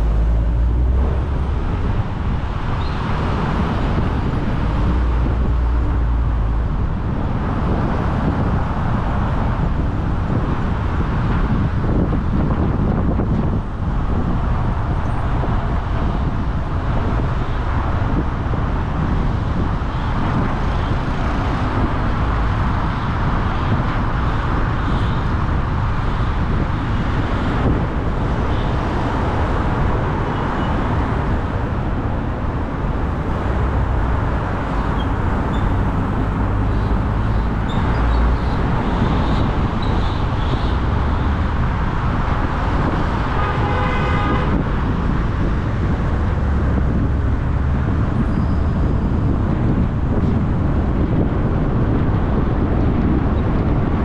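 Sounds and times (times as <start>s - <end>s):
car engine: 0.0s - 50.9s
traffic noise: 0.0s - 54.0s.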